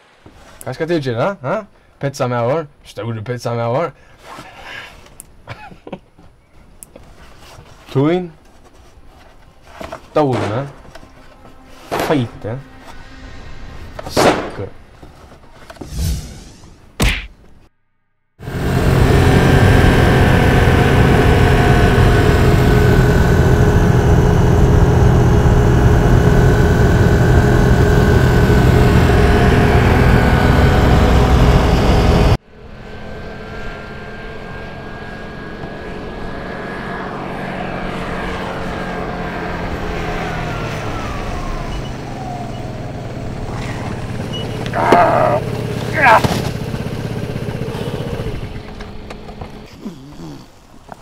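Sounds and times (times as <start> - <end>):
motor scooter engine running: 18.4 - 50.2.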